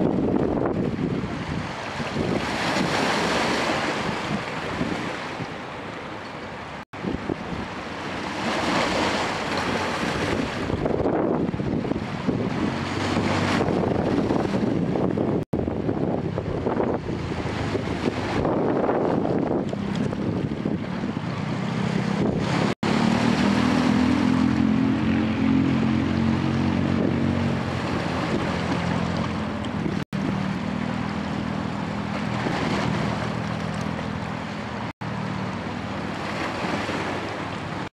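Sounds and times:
wind on microphone: 0.0s - 5.7s, 7.0s - 34.9s
barge diesel engine drone: 10.8s - 37.8s.

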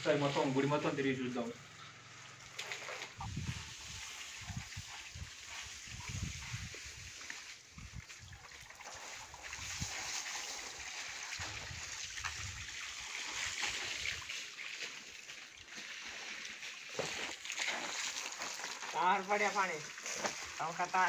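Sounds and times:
hose water splashing on concrete: 0.0s - 21.0s
low rumbling on microphone: 3.2s - 3.7s.

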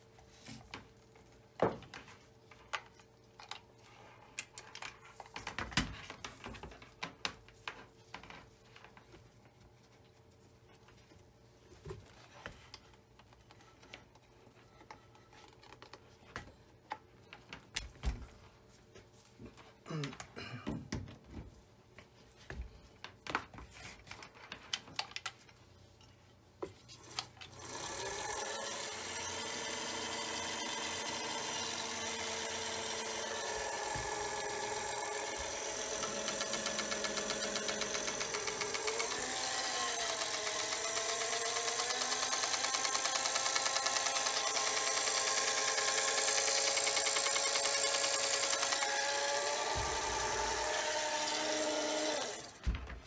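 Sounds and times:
sewing machine running: 27.5s - 52.6s.

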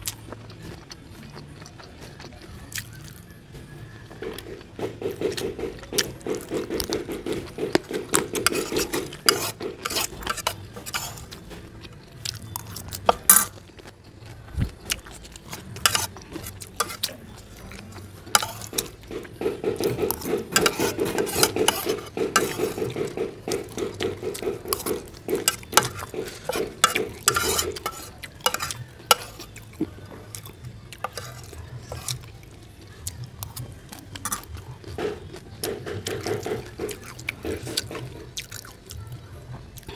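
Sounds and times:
metal spoon scraping a plate: 4.2s - 11.4s, 12.5s - 13.6s, 15.4s - 30.4s, 31.0s - 32.3s.

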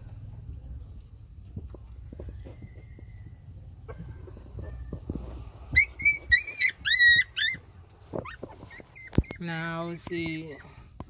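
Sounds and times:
puppies squealing: 5.7s - 10.8s.

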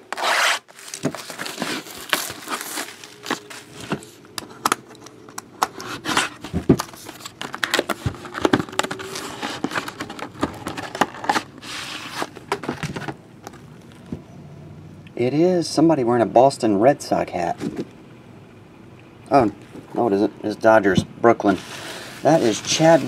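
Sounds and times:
cardboard scraping: 0.0s - 4.2s, 5.7s - 13.6s, 21.5s - 23.0s
packaging crinkling and rustling: 0.0s - 14.2s, 21.6s - 23.0s.

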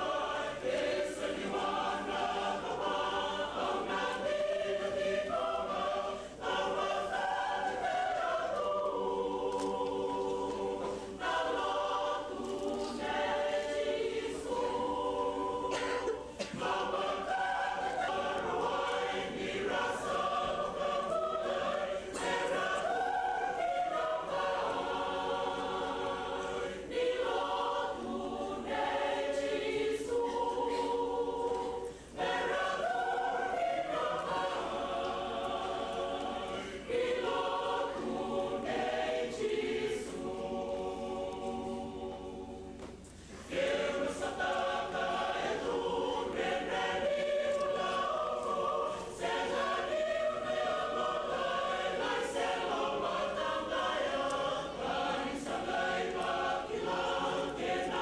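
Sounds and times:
choir singing: 0.0s - 58.0s.

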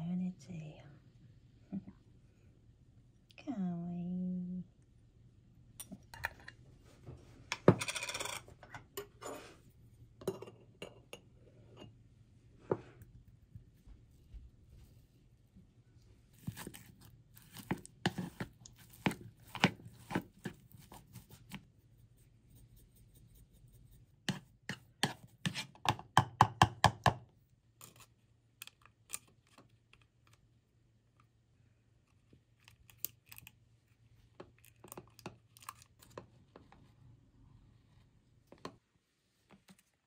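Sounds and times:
faint low hum: 0.0s - 24.6s.

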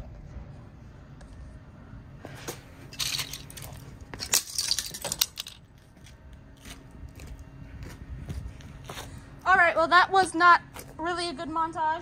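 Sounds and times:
plastic pieces clattering on concrete: 2.9s - 5.7s.

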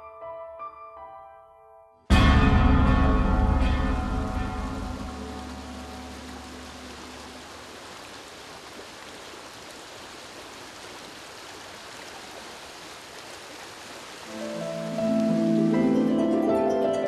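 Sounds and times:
flowing stream water: 2.7s - 17.0s
harp music: 14.3s - 17.0s.

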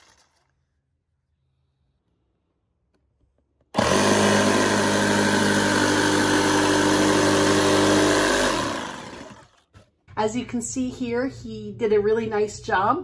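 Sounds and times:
jigsaw cutting plywood: 3.7s - 9.6s.

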